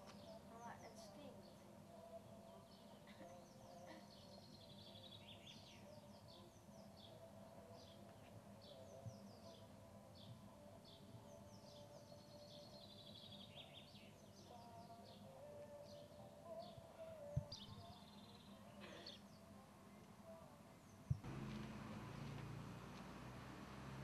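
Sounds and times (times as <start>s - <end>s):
small birds chirping: 0.0s - 19.6s, 20.7s - 24.0s
faint low hum: 16.5s - 24.0s.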